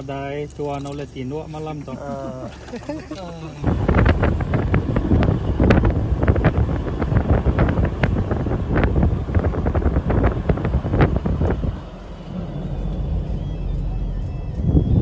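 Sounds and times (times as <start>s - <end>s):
car rumbling on road: 0.0s - 15.0s
wind buffeting microphone: 3.6s - 15.0s.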